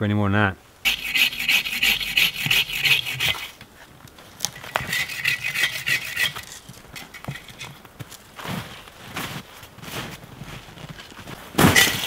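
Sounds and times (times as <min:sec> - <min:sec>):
saw cutting wood: 0:00.9 - 0:03.6, 0:04.6 - 0:07.6.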